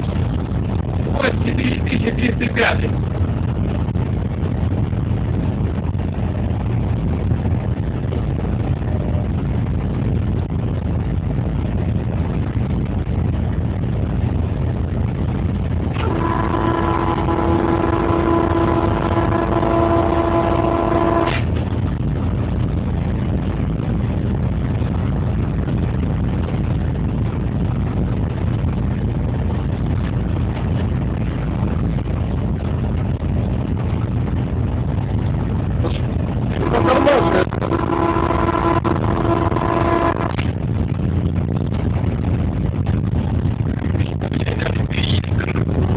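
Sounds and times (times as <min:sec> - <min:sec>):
diesel locomotive rumbling: 0:00.0 - 0:45.9
locomotive horn: 0:16.0 - 0:21.6, 0:36.6 - 0:40.5.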